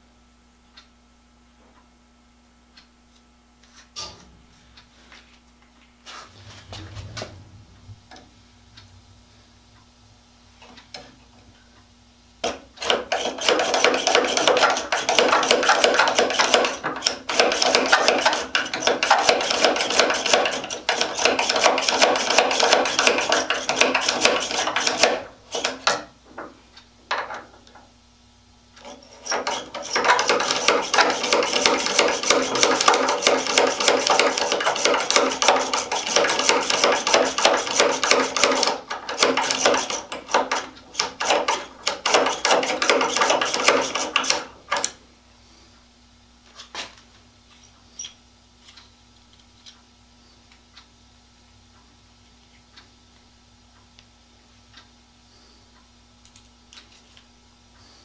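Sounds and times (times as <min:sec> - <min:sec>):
hand tool rapid clicking: 0:12.4 - 0:26.0, 0:28.9 - 0:44.9.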